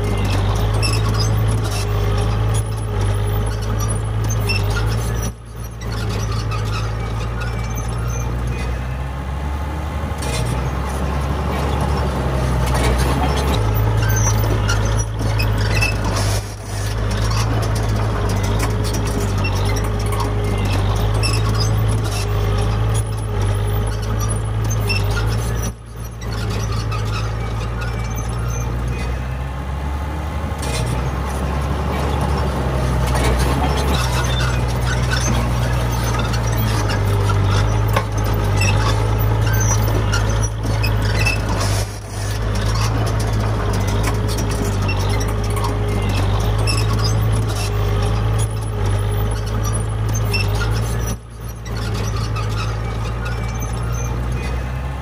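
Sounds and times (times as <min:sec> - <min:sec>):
heavy machinery diesel engine: 0:00.0 - 0:55.0.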